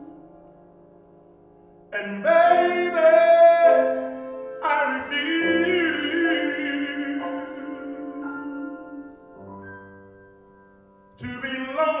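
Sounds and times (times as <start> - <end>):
man singing a ballad: 1.9 - 9.4, 11.2 - 12.0.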